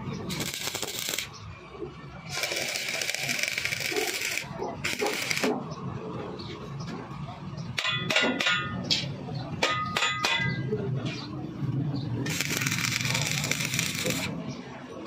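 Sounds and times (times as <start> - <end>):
welding arc crackling and hissing: 0.2 - 1.3, 2.3 - 5.5, 12.3 - 14.3.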